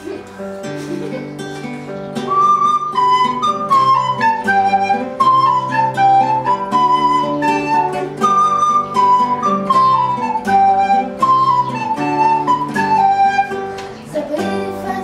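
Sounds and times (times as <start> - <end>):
acoustic guitar plucked: 0.0 - 15.0
recorder playing melody: 2.2 - 14.0.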